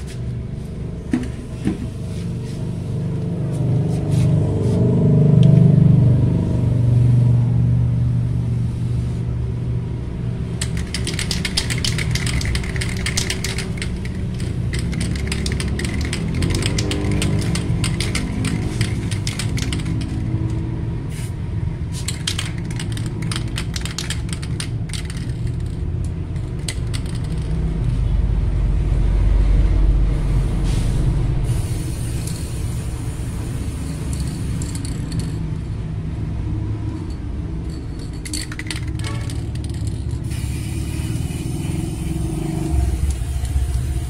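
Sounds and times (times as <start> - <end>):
constant low rumble: 0.0 - 44.0
spray can ball rattling: 10.6 - 20.6, 21.9 - 28.0, 31.7 - 35.7, 36.9 - 44.0
spray paint hiss: 21.1 - 22.6, 30.3 - 35.3, 40.1 - 44.0.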